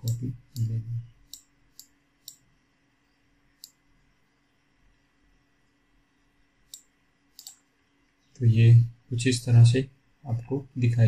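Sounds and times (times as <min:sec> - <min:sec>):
computer mouse clicking: 0:00.0 - 0:02.5, 0:06.7 - 0:07.6.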